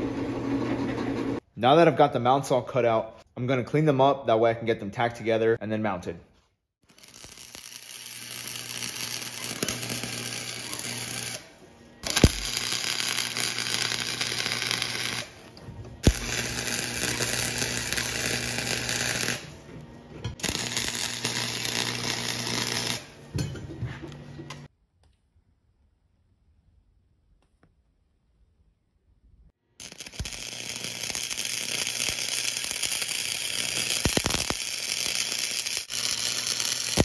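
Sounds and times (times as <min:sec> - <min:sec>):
sharp welding snaps: 0:06.8 - 0:19.6, 0:20.4 - 0:23.2, 0:29.8 - 0:37.0
arc welder crackling and sizzling: 0:06.8 - 0:19.7, 0:20.3 - 0:23.3, 0:29.8 - 0:37.0.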